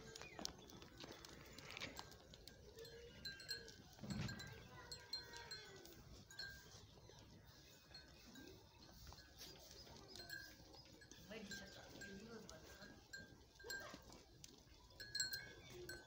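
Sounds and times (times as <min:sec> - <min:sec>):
sheep and goats feeding: 0:00.0 - 0:16.0.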